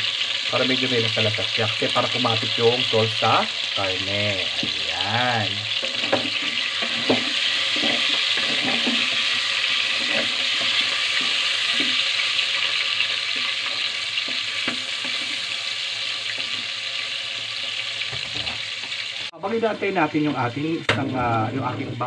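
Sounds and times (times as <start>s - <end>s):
pork sizzling in hot oil: 0.0s - 22.0s
wooden spatula scraping pot: 4.3s - 16.7s.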